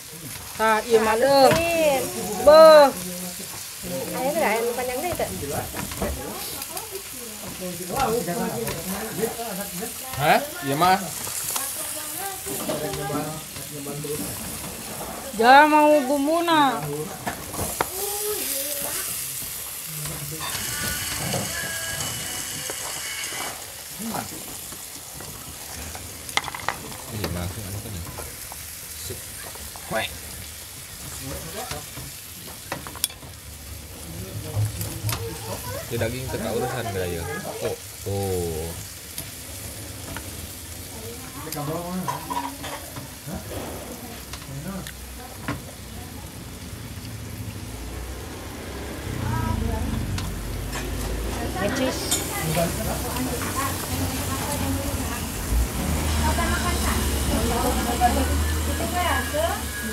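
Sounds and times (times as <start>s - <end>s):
meat sizzling on a grill pan: 0.0s - 59.9s
utensils clicking on a pan: 2.9s - 33.5s, 41.4s - 43.2s, 50.1s - 55.3s.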